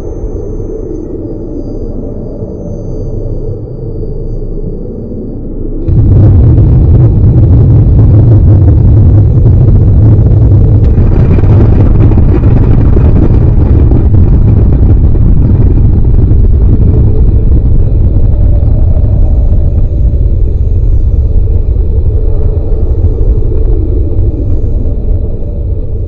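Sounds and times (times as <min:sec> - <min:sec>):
deep explosion rumble: 0:05.8 - 0:26.0.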